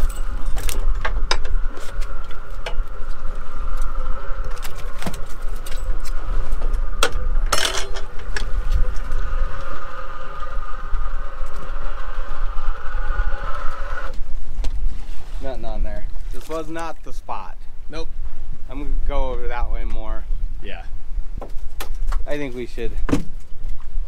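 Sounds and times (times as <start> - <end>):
metal fishing gear clinking: 0.0 - 1.0
constant mechanical whine: 0.0 - 24.0
steady low rumble: 0.0 - 24.0.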